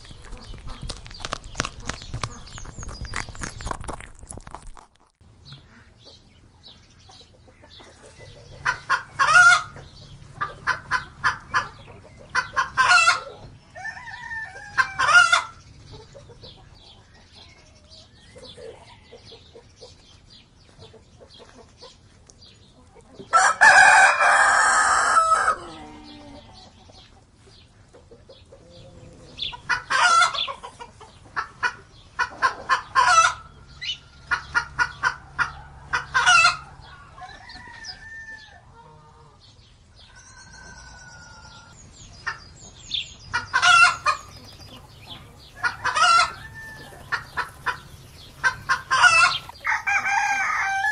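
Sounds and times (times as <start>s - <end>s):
chickens clucking and squawking: 0.0s - 4.0s, 5.3s - 50.9s
rooster crowing: 13.8s - 15.5s, 23.3s - 26.4s, 37.1s - 38.6s, 45.4s - 50.9s.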